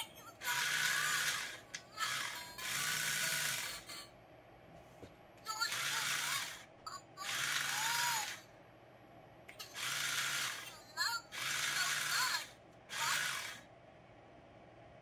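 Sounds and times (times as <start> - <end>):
toy gear motor whirring: 0.0 - 4.1, 5.5 - 8.5, 9.6 - 13.7.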